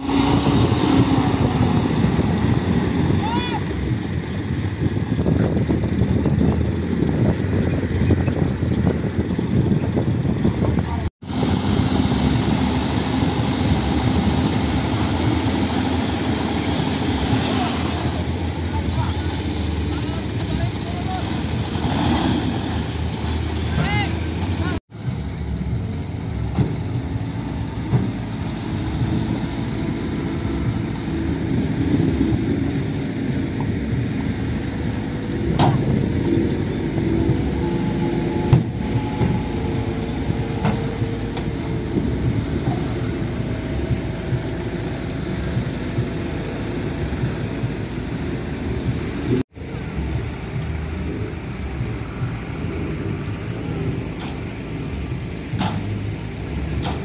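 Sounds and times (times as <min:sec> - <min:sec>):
diesel truck engines running: 0:00.0 - 0:57.0.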